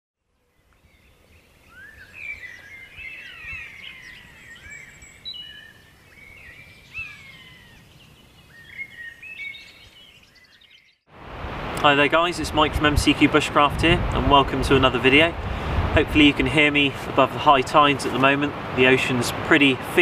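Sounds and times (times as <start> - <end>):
songbirds singing: 0.2 - 11.1.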